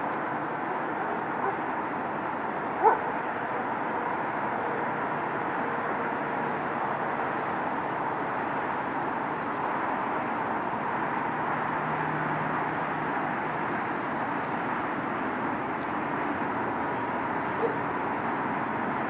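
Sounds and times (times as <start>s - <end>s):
diesel train rumbling: 0.0s - 19.0s.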